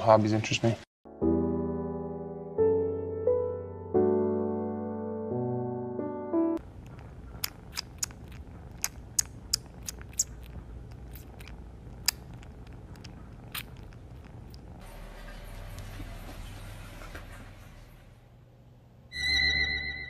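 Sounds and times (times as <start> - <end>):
kitten mouth clicks and smacks: 6.6 - 14.8
kitten purring: 6.6 - 16.4.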